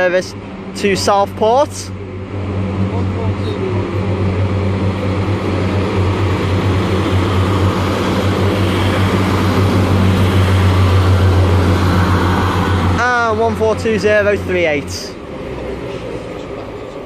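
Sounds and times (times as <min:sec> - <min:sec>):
diesel train engine drone: 0:00.0 - 0:17.0.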